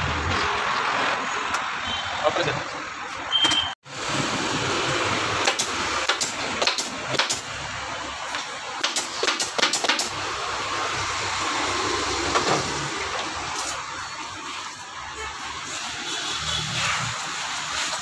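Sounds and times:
steady background noise: 0:00.0 - 0:18.0
pneumatic staple gun firing: 0:05.4 - 0:07.5, 0:08.8 - 0:10.1.

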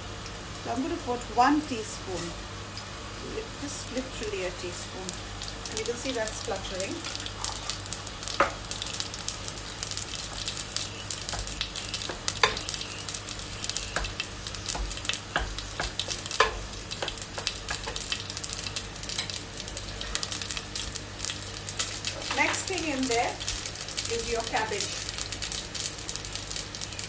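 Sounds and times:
spices sizzling in hot oil: 0:00.0 - 0:27.0
wooden spoon knocking on pan: 0:08.3 - 0:08.6, 0:11.3 - 0:12.8, 0:13.7 - 0:18.1.

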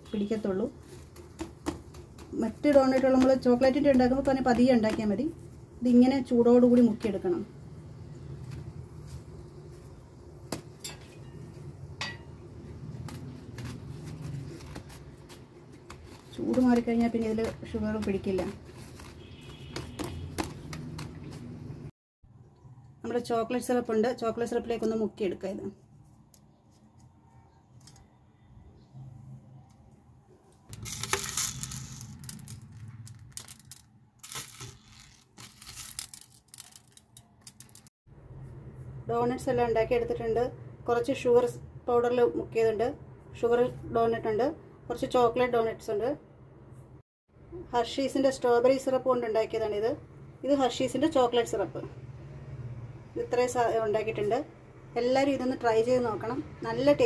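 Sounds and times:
sugar sprinkles rustling: 0:12.5 - 0:21.8, 0:30.7 - 0:37.9.

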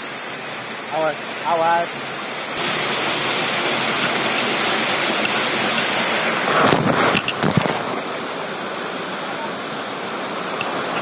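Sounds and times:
waterfall rushing: 0:00.0 - 0:11.0
sharp splashes and knocks: 0:02.6 - 0:08.0.

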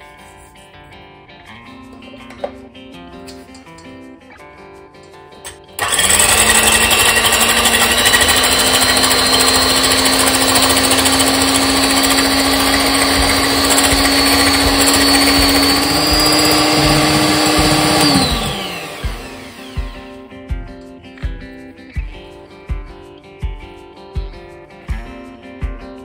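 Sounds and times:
electric hand mixer whining: 0:05.8 - 0:20.2.

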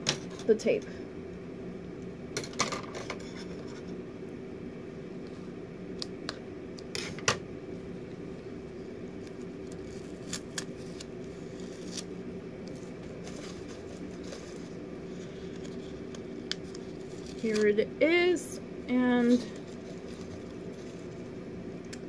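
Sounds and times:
steady low hum: 0:00.0 - 0:22.0
tape being handled: 0:09.2 - 0:17.8, 0:19.2 - 0:21.3.

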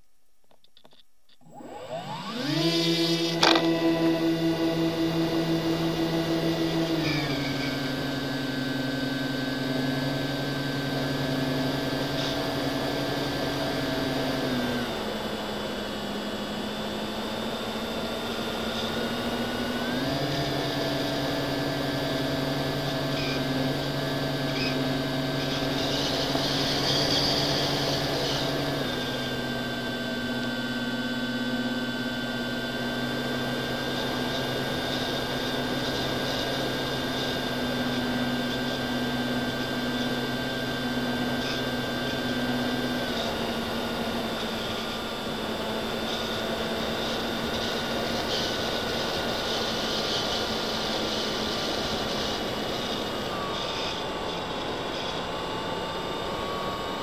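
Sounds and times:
electric motor and propeller whine: 0:01.4 - 0:57.0.

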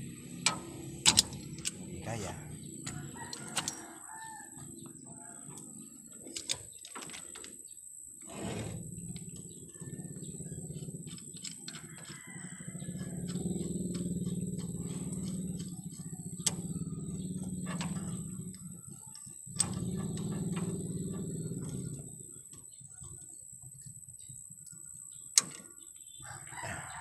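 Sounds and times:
low hum: 0:12.5 - 0:22.3.

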